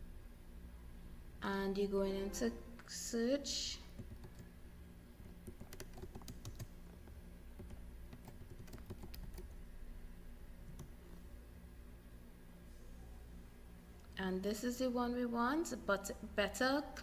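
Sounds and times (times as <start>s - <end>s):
low steady hum: 0.0s - 17.0s
computer keyboard keystrokes: 4.0s - 4.4s, 5.4s - 6.7s, 7.6s - 9.6s.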